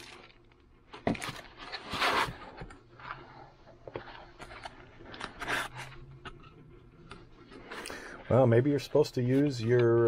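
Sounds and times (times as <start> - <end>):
packaging rustling and scraping: 0.0 - 6.6.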